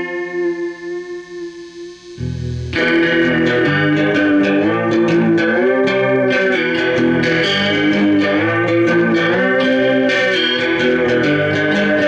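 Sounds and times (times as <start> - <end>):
electric guitar with gliding notes: 0.0 - 12.0.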